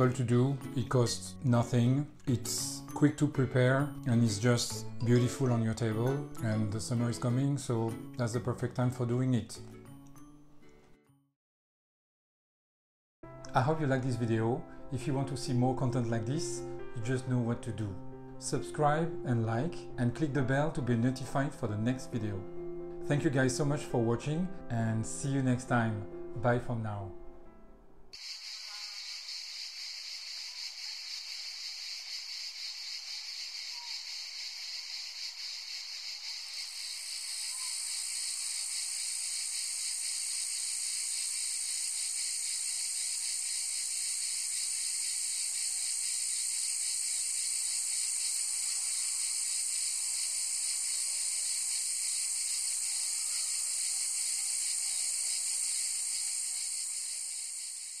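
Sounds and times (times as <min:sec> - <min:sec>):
high-pitched hissing: 0:28.2 - 0:58.0.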